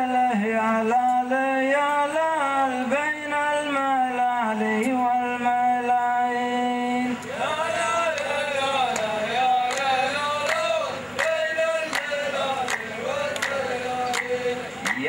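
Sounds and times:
man singing: 0.0 - 15.0
men chanting in unison: 0.0 - 15.0
sharp clap-like beats: 8.0 - 15.0.

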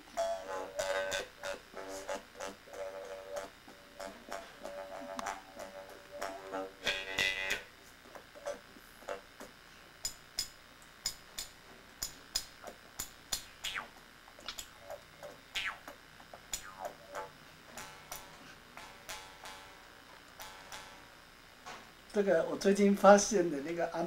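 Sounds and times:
jaw harp twanging: 12.6 - 19.6.

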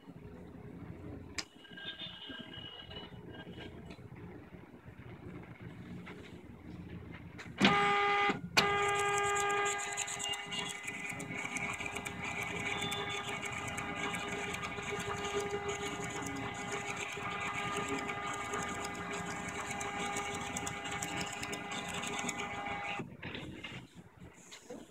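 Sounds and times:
printer ticking: 7.6 - 23.0
printer whine: 7.6 - 23.7.

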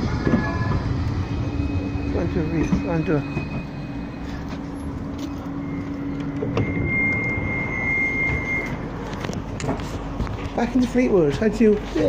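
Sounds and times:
tram low hum: 0.0 - 12.0
door warning beep: 0.5 - 8.9.

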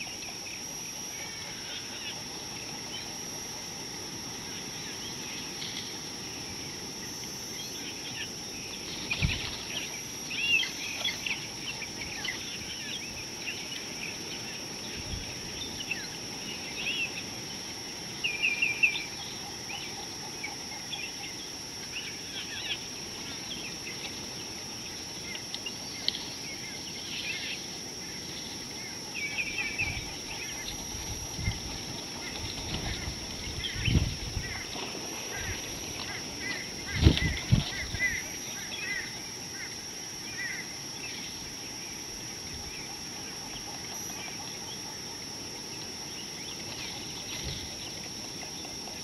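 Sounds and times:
high-pitched whine: 0.0 - 49.0
steady hiss: 0.0 - 49.0
birds chirping and calling: 28.2 - 41.3.

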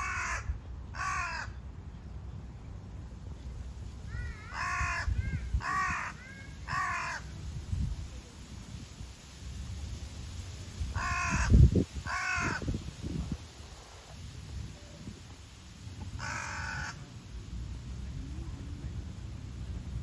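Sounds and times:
crows cawing: 0.0 - 1.6, 4.1 - 7.3, 11.0 - 12.6, 16.1 - 17.0
faint answering crow calls: 0.0 - 1.6, 4.0 - 7.4, 10.9 - 12.8, 16.1 - 17.2.

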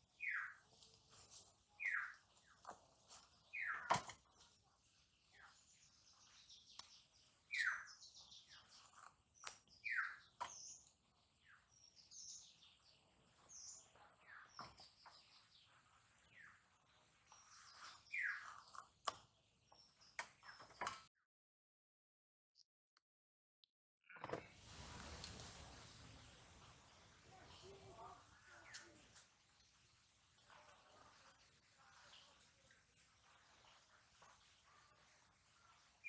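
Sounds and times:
birds calling: 3.5 - 4.0, 5.4 - 16.6.

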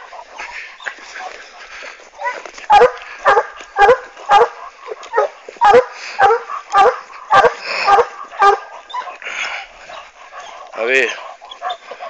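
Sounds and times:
dog barking: 2.2 - 9.1.

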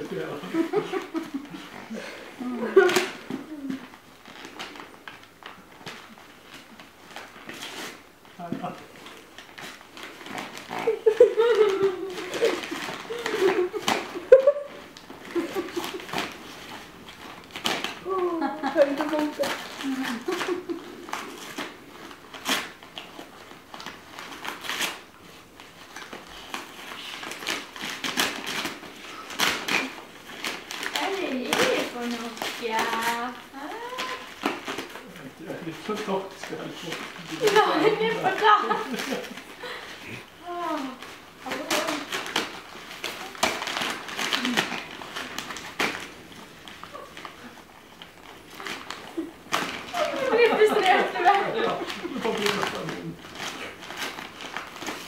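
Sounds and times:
wrapping paper tearing: 0.0 - 55.0.

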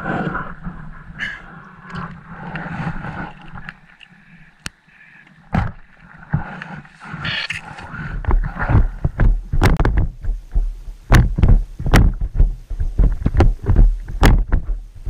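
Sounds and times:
water washing: 0.0 - 9.7
wind: 0.0 - 15.0
gear knocking on kayak: 8.2 - 14.8.

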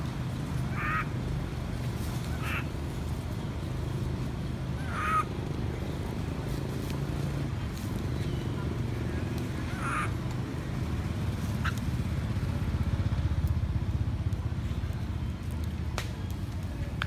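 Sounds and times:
baby monkey crying call: 0.7 - 1.2, 2.3 - 2.7, 4.8 - 5.3, 9.7 - 10.2.

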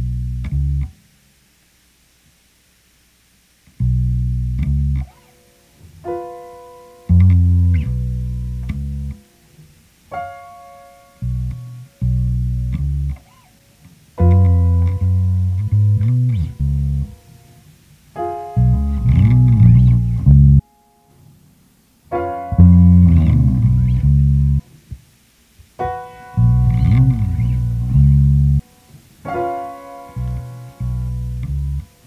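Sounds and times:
experimental bass guitar music: 0.0 - 1.0, 3.7 - 6.3, 7.0 - 9.4, 11.1 - 17.5, 18.2 - 20.7, 22.4 - 24.7, 25.8 - 28.7, 29.3 - 32.0.

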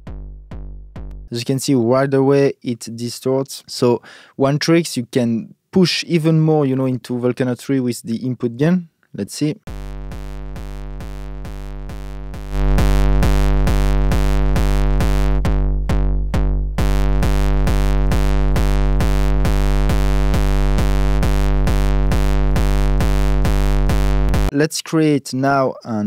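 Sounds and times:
distorted kick drum loop: 0.0 - 1.3, 9.7 - 24.5.

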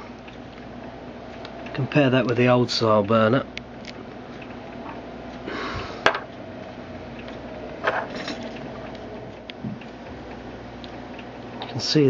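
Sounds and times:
metal burners knocking on table: 6.0 - 6.3.

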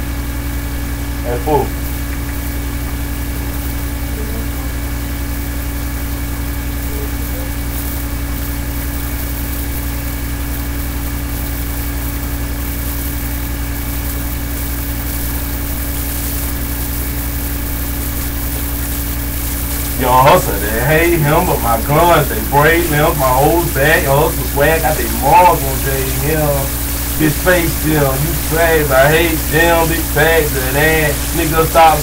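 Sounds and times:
steady low drone hum: 19.8 - 32.0.

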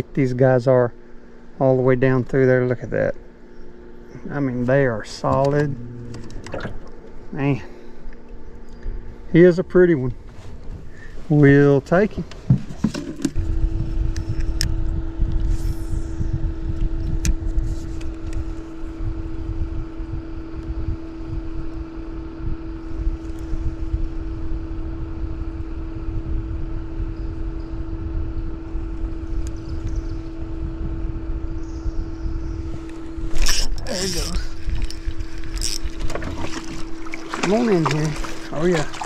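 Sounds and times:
electric motor humming: 0.0 - 39.0
low rumble: 4.1 - 11.5, 13.3 - 21.7.

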